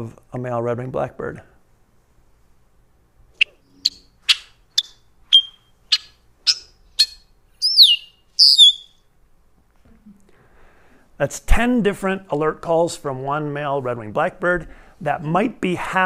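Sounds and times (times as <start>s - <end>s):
falling whistled bird calls: 3.4s - 9.0s
sharp chuck bird calls: 3.4s - 9.0s.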